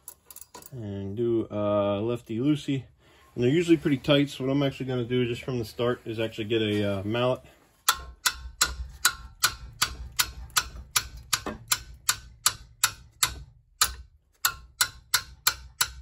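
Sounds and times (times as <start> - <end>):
mallet knocking on wrench: 7.9 - 16.0.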